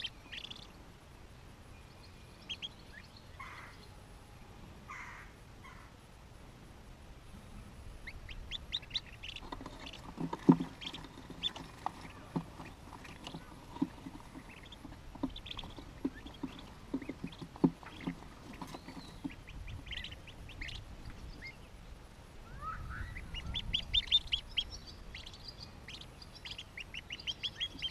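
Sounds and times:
ducklings peeping: 0.0s - 0.8s, 1.9s - 4.0s, 7.4s - 21.8s, 22.6s - 27.9s.

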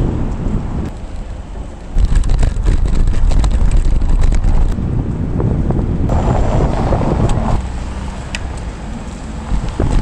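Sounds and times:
wind buffeting microphone: 0.0s - 10.0s
scooter rattling over cobblestones: 1.9s - 4.8s.

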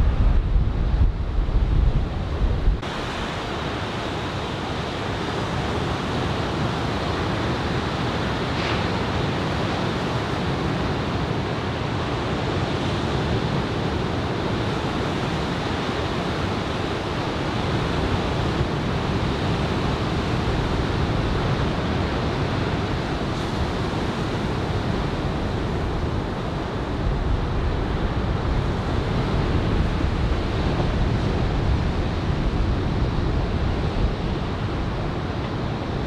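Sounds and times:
ocean surf breaking: 0.0s - 11.7s, 12.4s - 36.0s
wind rumble on microphone: 0.0s - 36.0s.

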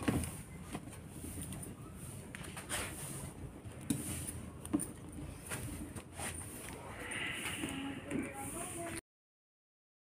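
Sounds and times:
firewood crackles and knocks: 0.0s - 1.7s, 2.3s - 6.8s
wood fire burning: 0.0s - 9.0s.

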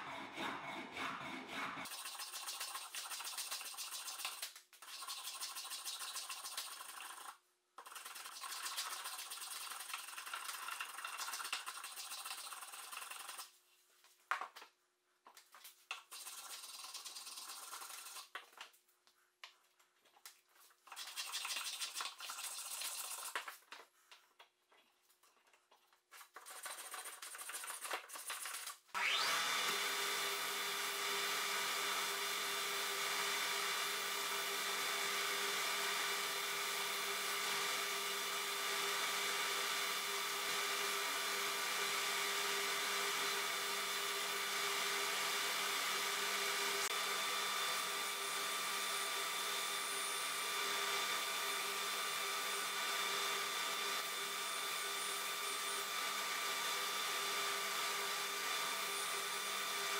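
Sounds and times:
hand tool strokes on wood: 0.0s - 1.9s
belt sander running: 29.0s - 59.9s.

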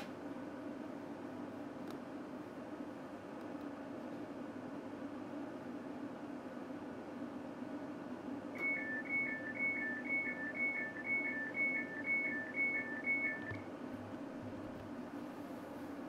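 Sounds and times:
two-tone door warning beep: 8.6s - 13.6s.

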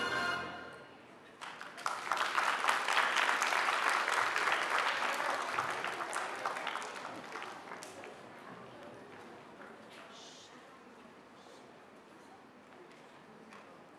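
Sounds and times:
music: 0.0s - 1.0s
audience applauding: 1.4s - 8.2s.

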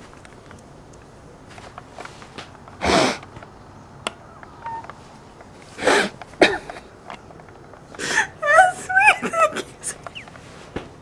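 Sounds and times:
woman sobbing: 8.0s - 10.1s.

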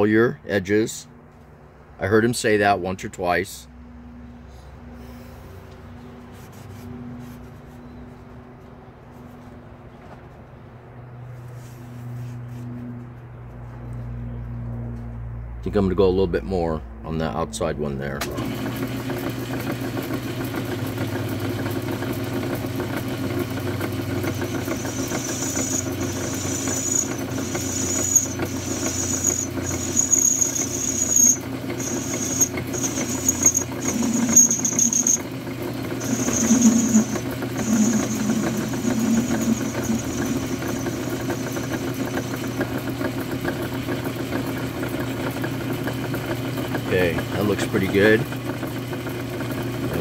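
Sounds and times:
metal lathe running: 18.4s - 50.0s
high-pitched cutting whine: 23.9s - 43.1s.

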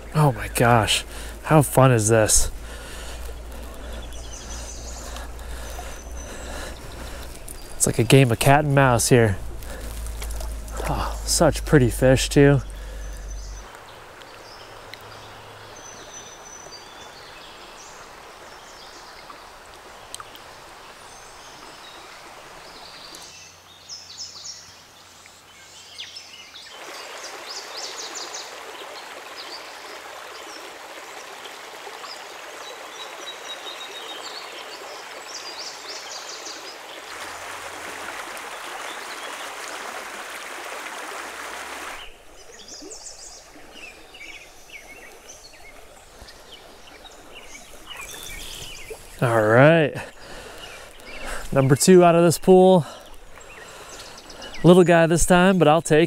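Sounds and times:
small birds chirping: 0.0s - 29.7s, 41.8s - 56.0s
creek water flowing: 0.0s - 56.0s.

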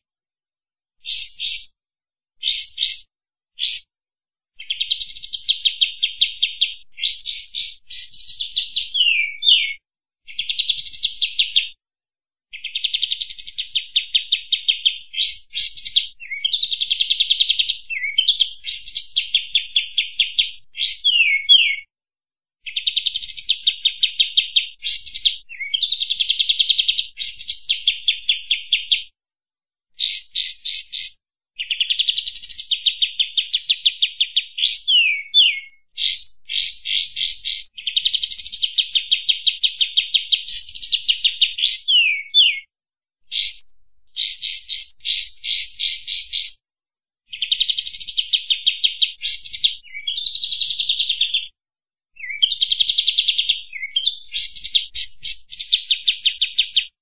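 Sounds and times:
bulbul singing: 1.0s - 1.7s, 2.4s - 3.8s, 4.6s - 9.8s, 43.3s - 46.6s.

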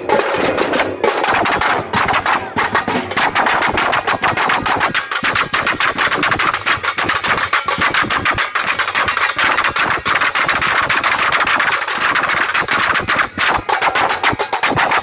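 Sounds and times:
drum band drumming: 0.0s - 15.0s.

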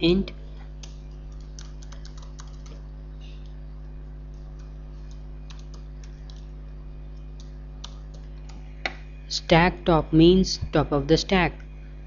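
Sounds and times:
steady low hum: 0.0s - 12.0s
keyboard typing: 0.8s - 3.6s, 4.3s - 6.5s, 7.2s - 8.6s.

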